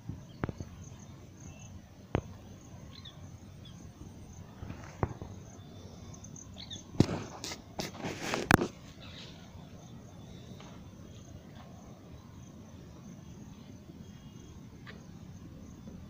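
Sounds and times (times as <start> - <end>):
high insect drone: 0.0 - 16.0
faint bird-like chirps: 0.1 - 7.4, 8.7 - 16.0
loud noisy rustle: 7.0 - 9.4.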